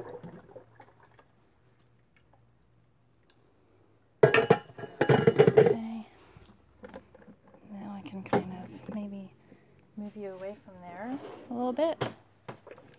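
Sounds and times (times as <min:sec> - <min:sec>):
metal bowl clanking: 0:04.2 - 0:05.9.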